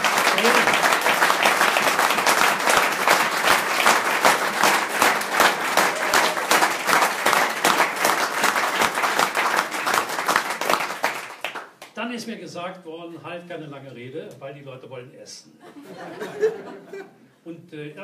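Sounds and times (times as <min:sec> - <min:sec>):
audience applause: 0:00.0 - 0:11.9.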